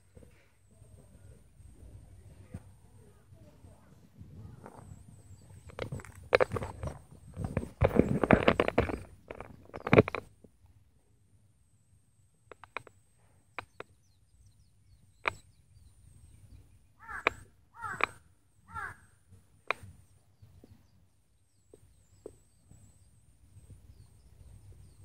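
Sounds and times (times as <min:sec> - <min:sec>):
sharp clicks: 0:05.6 - 0:10.3, 0:12.5 - 0:13.9, 0:15.2 - 0:15.5, 0:17.2 - 0:18.2, 0:19.6 - 0:19.9
crow cawing: 0:17.0 - 0:19.2.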